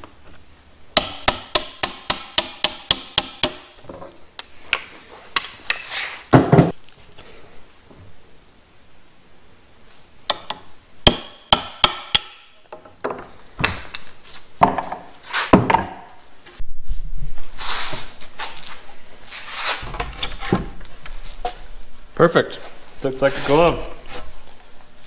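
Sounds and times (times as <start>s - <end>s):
hammer striking wooden rail: 1.0s - 3.8s, 10.3s - 13.8s.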